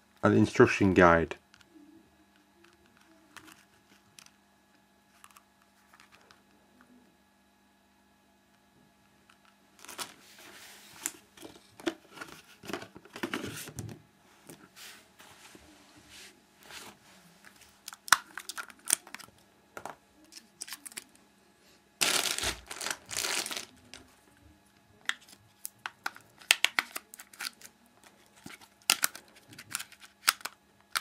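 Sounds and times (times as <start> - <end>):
crinkling rustle: 22.0 - 24.0
plastic camera handling clicks: 28.9 - 31.0.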